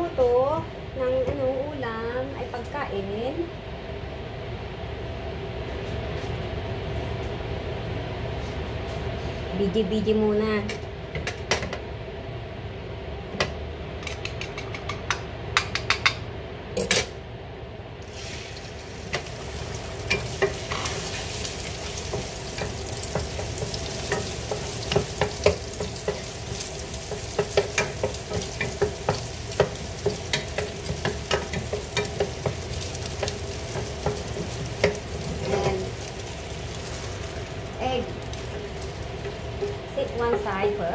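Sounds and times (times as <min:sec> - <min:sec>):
food sizzling in oil: 0:18.0 - 0:40.9
spatula scraping frying pan: 0:19.2 - 0:37.1.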